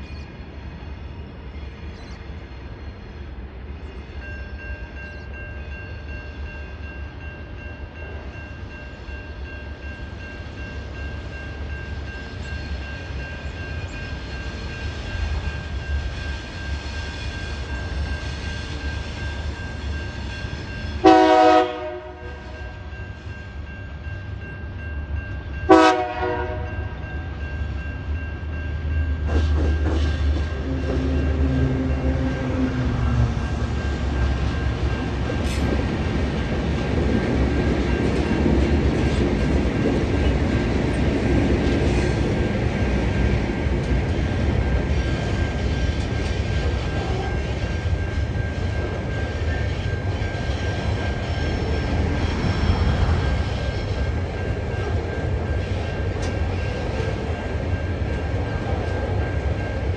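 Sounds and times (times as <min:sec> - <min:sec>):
diesel locomotive engines rumbling: 0:00.0 - 0:59.9
train horn blast: 0:21.0 - 0:22.9, 0:25.7 - 0:27.0, 0:30.3 - 0:33.4
level crossing warning tone: 0:30.4 - 0:35.4.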